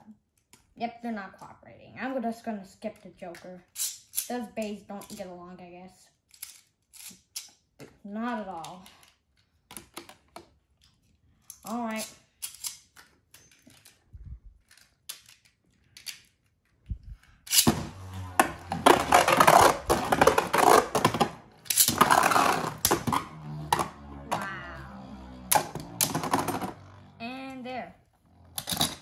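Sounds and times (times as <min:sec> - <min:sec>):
spinning tops clattering: 0:17.5 - 0:24.5.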